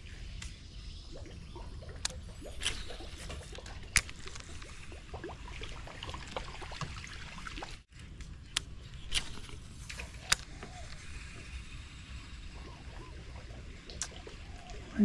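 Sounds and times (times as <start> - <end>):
water gurgling and dripping: 0.8 - 7.9, 10.0 - 15.0.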